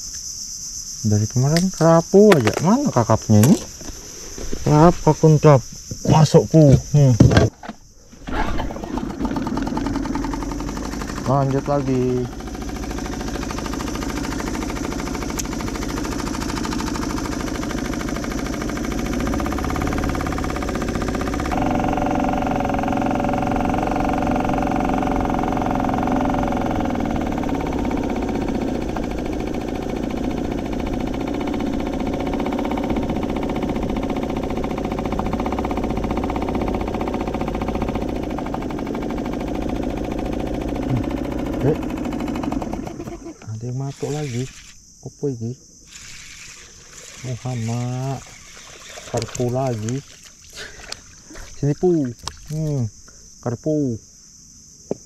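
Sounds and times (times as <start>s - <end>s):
outboard motor running: 6.0s - 44.9s, 45.8s - 52.8s.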